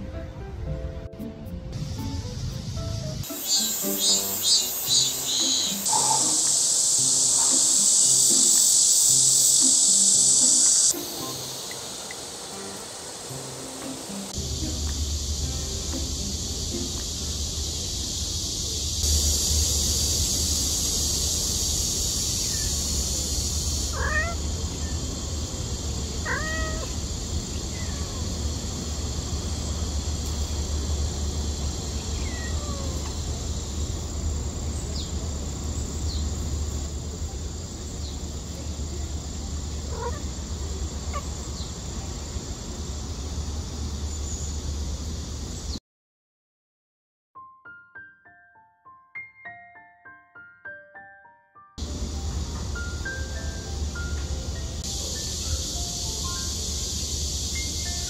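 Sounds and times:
steady high hiss: 0:00.8 - 0:45.8, 0:51.8 - 0:58.0
young cat meowing: 0:23.9 - 0:24.4, 0:26.2 - 0:27.0, 0:27.7 - 0:28.2, 0:32.2 - 0:33.2, 0:39.9 - 0:40.3.

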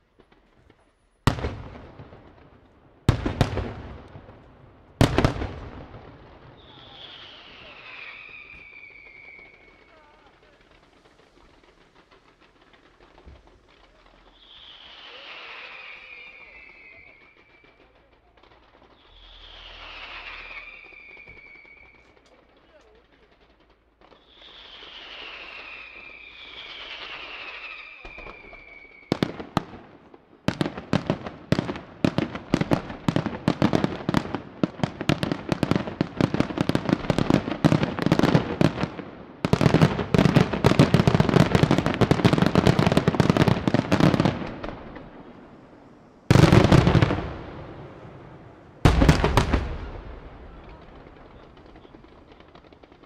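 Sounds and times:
firework bangs and crackle: 0:00.0 - 0:53.0
heavy firework booms: 0:00.2 - 0:53.0
firework whistles falling: 0:06.6 - 0:10.6, 0:13.0 - 0:18.0, 0:18.8 - 0:22.4, 0:24.1 - 0:29.3.

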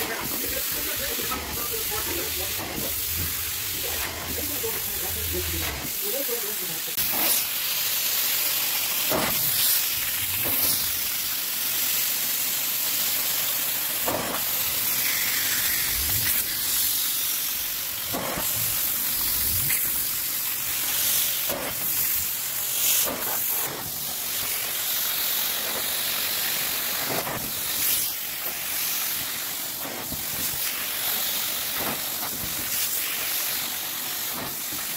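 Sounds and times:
extractor vacuum hissing: 0:00.0 - 0:34.9.

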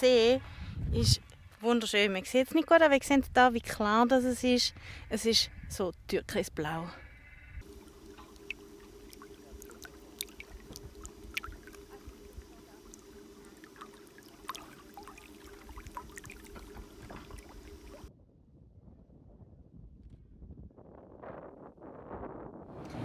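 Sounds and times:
low hum: 0:07.1 - 0:23.0
faint dull rumble: 0:07.2 - 0:23.0
small waves lapping: 0:07.6 - 0:18.1.

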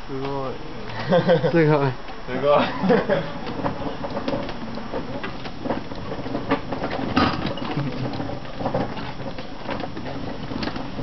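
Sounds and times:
rickshaw rattling on pavement: 0:02.3 - 0:11.0
clicks and knocks: 0:03.4 - 0:11.0.

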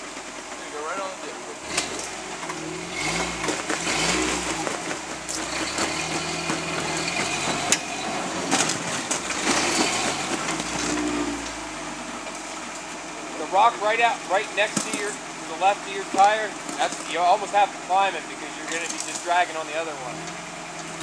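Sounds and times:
tires crunching on rock: 0:00.0 - 0:21.0
truck engine revving: 0:00.0 - 0:21.0.

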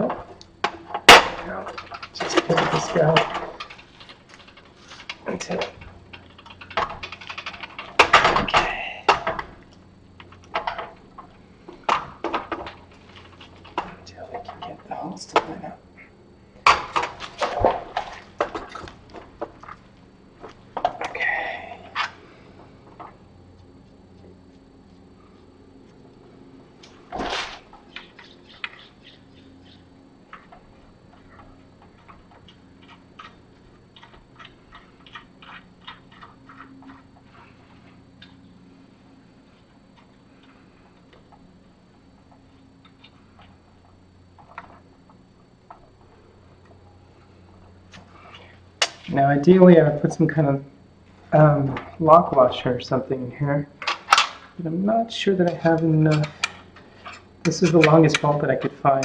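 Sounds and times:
loud knock and rattle: 0:00.0 - 0:09.6
steel parts clunking and knocking: 0:00.0 - 0:09.6, 0:10.2 - 0:15.7, 0:55.4 - 0:59.0.

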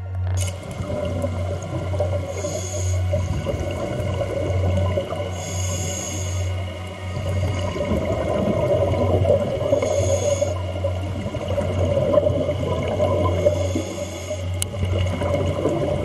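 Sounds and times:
steady low hum: 0:00.0 - 0:16.0
hissing regulator inhalation: 0:02.1 - 0:03.5, 0:05.1 - 0:08.0, 0:09.6 - 0:11.0, 0:13.2 - 0:14.6.

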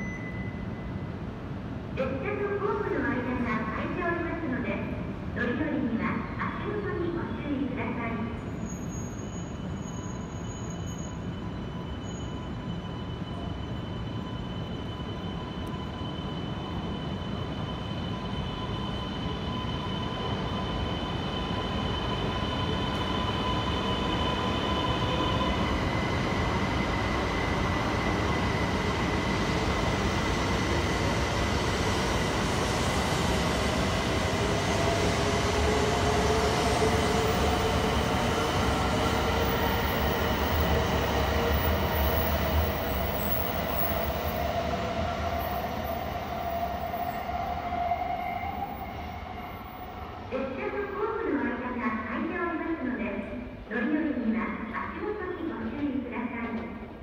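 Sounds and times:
train rolling noise: 0:08.4 - 0:51.2.

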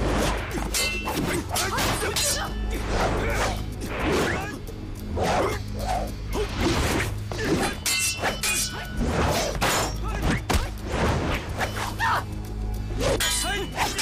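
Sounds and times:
metal weapons clashing: 0:00.0 - 0:02.8, 0:07.4 - 0:10.7, 0:13.0 - 0:14.0
background music: 0:00.0 - 0:14.0.

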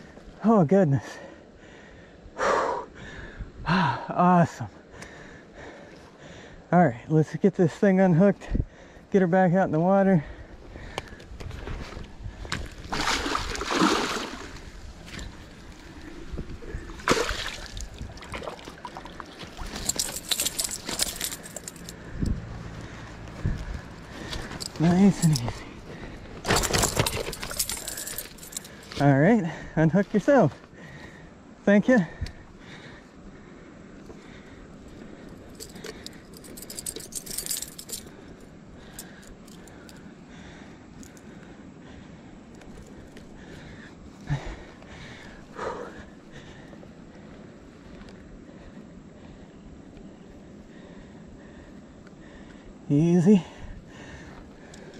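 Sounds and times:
landing net rustling: 0:12.6 - 0:22.0, 0:23.4 - 0:28.9
metal fishing tackle jingling: 0:17.3 - 0:22.8, 0:23.6 - 0:25.8, 0:26.4 - 0:29.1, 0:35.2 - 0:40.1
sharp clicks and clinks: 0:19.6 - 0:22.4, 0:26.5 - 0:29.0, 0:35.6 - 0:38.1.

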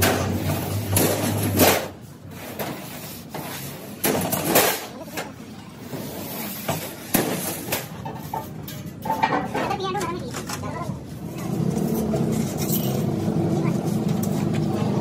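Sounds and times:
metal clanks and knocks: 0:06.6 - 0:10.8.

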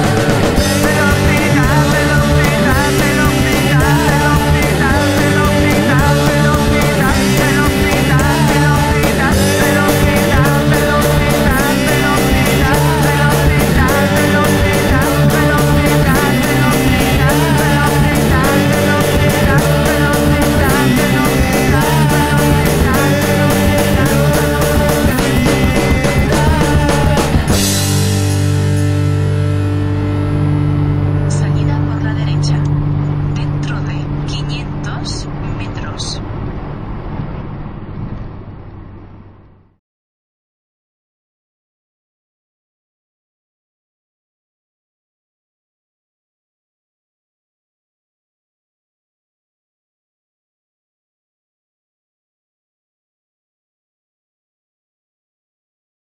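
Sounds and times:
rock band playing: 0:00.0 - 0:34.3
held chord ringing: 0:27.5 - 0:34.3.

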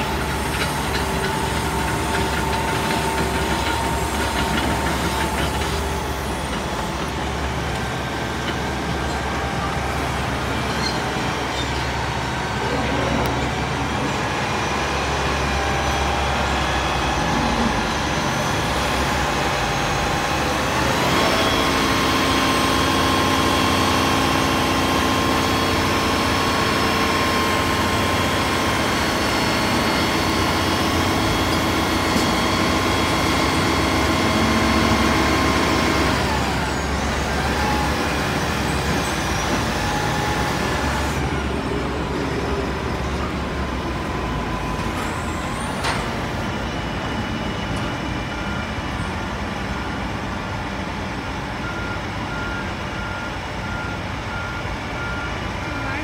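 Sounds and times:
diesel engine running and revving: 0:00.0 - 0:56.0.

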